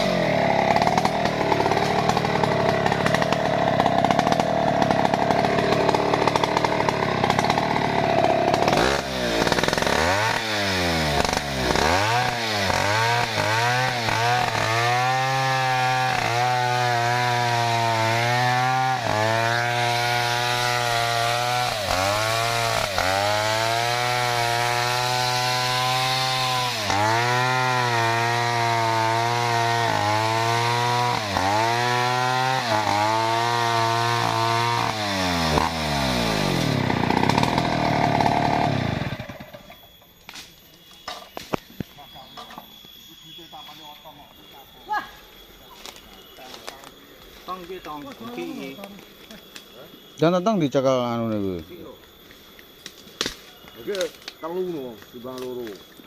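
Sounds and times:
chainsaw sawing through log: 0.0 - 39.7.

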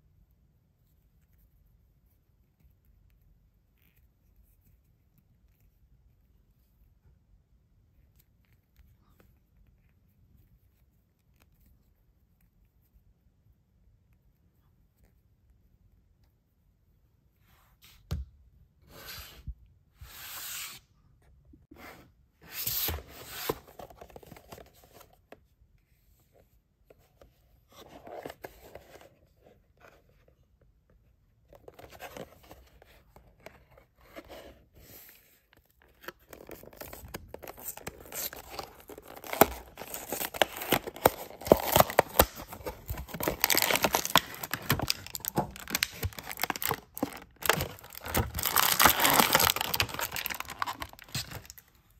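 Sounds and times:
packaging rustles and taps: 36.1 - 51.6
plastic blister pack crinkling: 36.2 - 51.7.

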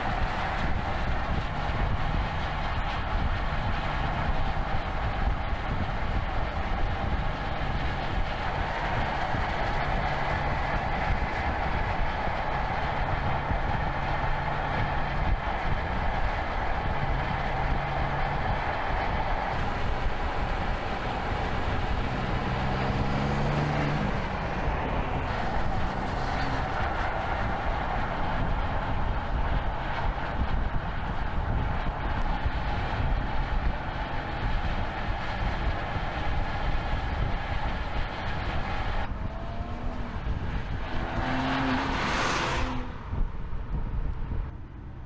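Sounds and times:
car engine running: 0.0 - 45.0
tyre and road rush: 0.0 - 45.0
car sweeping past: 19.6 - 27.7, 39.2 - 43.1.

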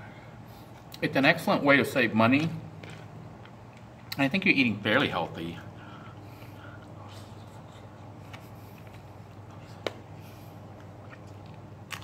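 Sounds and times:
person chewing food: 7.8 - 12.0.

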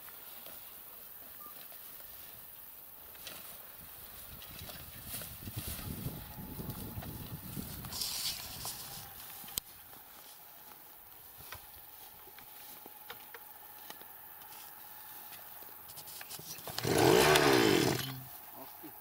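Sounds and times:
earth auger engine revving: 16.6 - 18.3.

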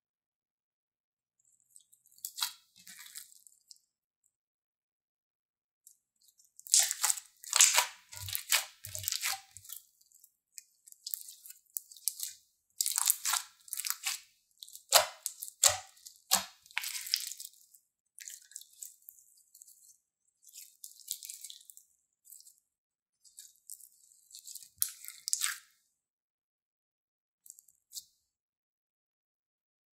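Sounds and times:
slime crackling and squishing: 2.2 - 3.7, 6.4 - 22.6, 23.3 - 25.7.

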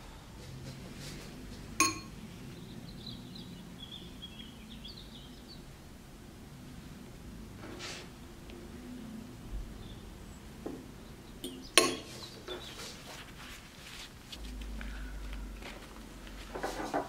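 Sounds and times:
metal spoon clinking glass bowl: 1.8 - 2.2, 11.4 - 12.2.

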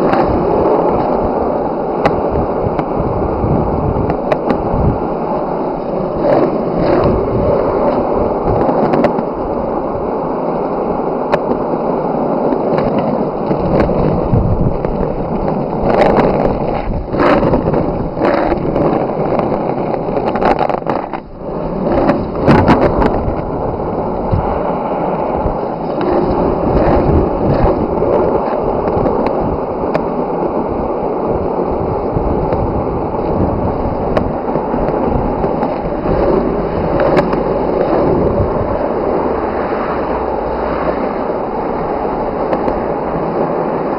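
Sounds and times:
skateboard wheels rolling on road: 0.0 - 43.9
skateboard knocks over bumps: 6.1 - 9.4, 42.4 - 43.0.

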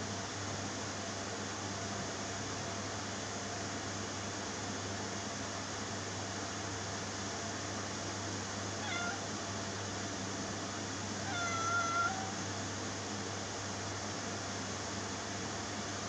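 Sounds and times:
background hiss and low hum: 0.0 - 16.0
kitten meowing: 8.8 - 9.3, 11.3 - 12.4.

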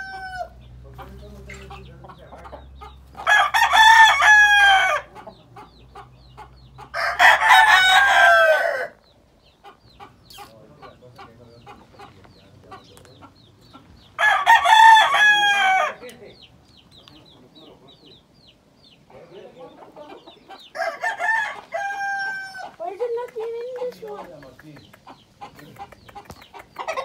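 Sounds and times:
soft clucking: 0.0 - 3.3, 5.1 - 7.0, 9.4 - 14.2, 16.0 - 20.8, 22.5 - 27.0
roosters crowing: 0.0 - 16.5, 17.5 - 24.2, 25.1 - 27.0.

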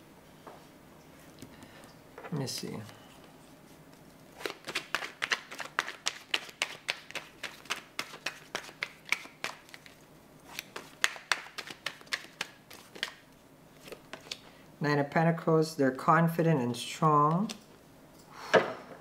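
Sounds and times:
cards being shuffled: 4.4 - 13.2, 13.8 - 14.4.

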